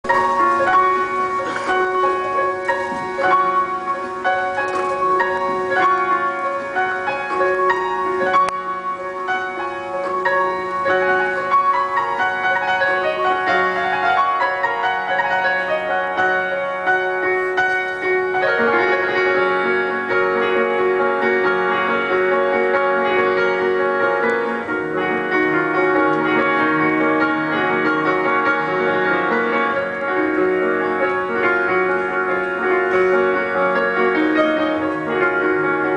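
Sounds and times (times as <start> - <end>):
grand piano playing: 0.0 - 35.9.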